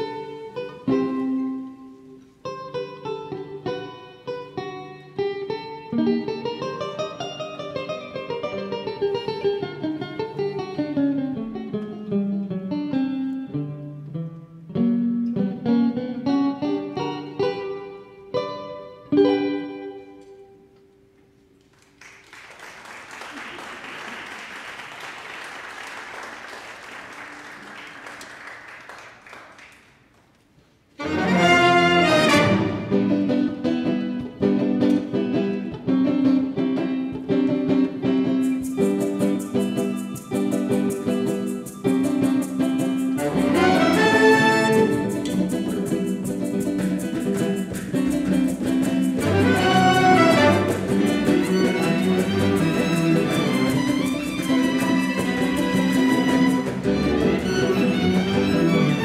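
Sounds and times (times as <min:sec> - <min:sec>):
audience applause: 0:21.7 - 0:30.2
symphony orchestra with bowed strings: 0:31.0 - 0:33.2, 0:43.2 - 0:45.5, 0:49.1 - 0:59.0.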